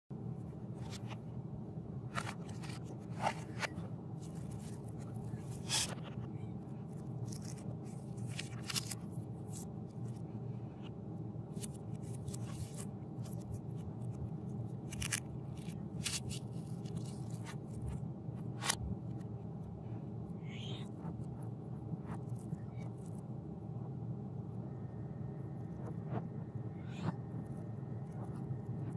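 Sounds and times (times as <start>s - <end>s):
steady low hum: 0.1s - 28.9s.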